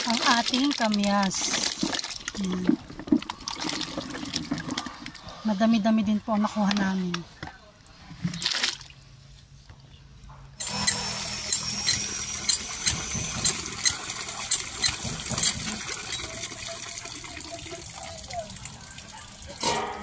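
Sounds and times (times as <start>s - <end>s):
water gushing from pump spout: 0.0s - 5.5s, 10.6s - 20.0s
pump handle clicking: 11.5s - 16.5s.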